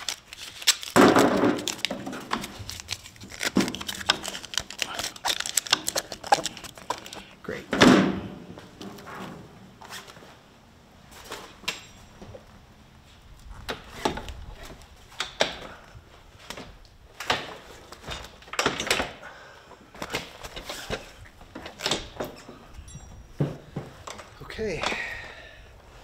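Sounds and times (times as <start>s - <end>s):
fabric rustling and scraping: 8.6s - 11.6s.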